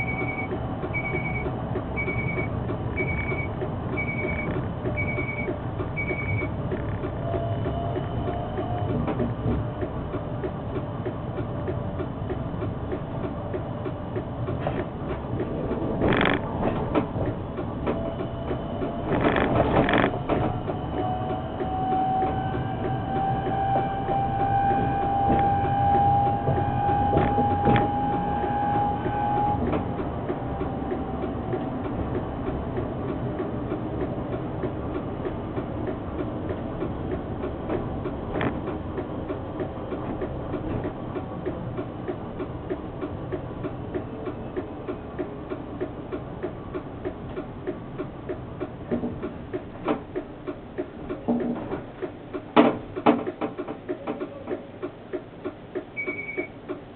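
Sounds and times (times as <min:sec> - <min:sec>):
tram running rumble: 0:00.0 - 0:56.9
tram traction drive whine: 0:00.0 - 0:56.9.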